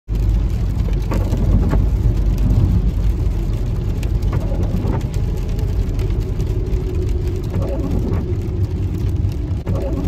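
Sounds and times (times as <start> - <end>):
engine and tyres rumbling: 0.1 - 10.0.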